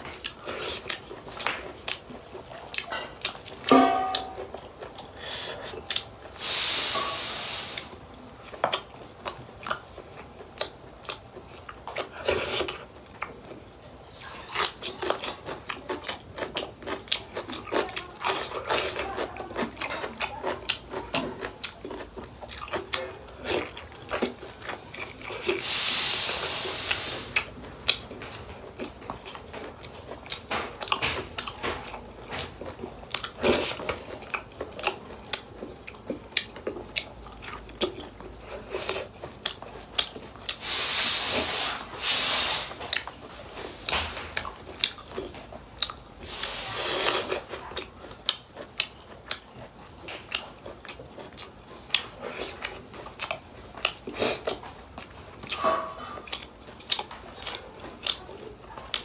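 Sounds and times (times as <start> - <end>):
close-up chewing and crunching: 0.0 - 6.5, 7.6 - 42.0, 42.6 - 59.0
loud hiss: 6.4 - 8.0, 25.6 - 27.4, 40.6 - 42.8.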